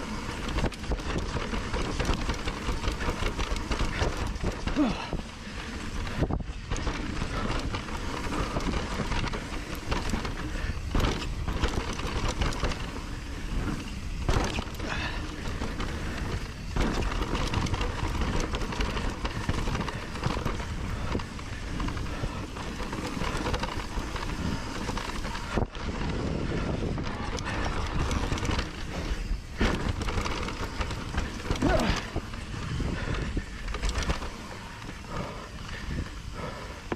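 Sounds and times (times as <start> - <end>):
bike frame rattling: 0.0 - 36.9
wind buffeting microphone: 0.0 - 36.9
tyre rumble over dirt: 5.8 - 35.4.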